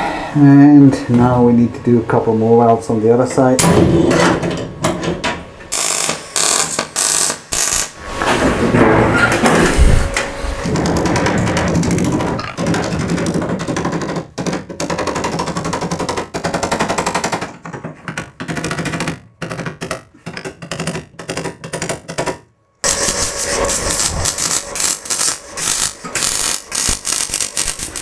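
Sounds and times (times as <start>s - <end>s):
welder arc crackling: 5.7s - 8.0s, 22.8s - 28.0s.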